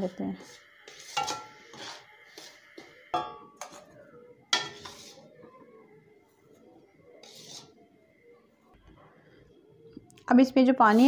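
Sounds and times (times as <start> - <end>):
utensil scraping pan: 0.3 - 3.9, 4.5 - 5.4, 7.2 - 7.8
metallic knocks on steel pan: 3.2 - 3.7.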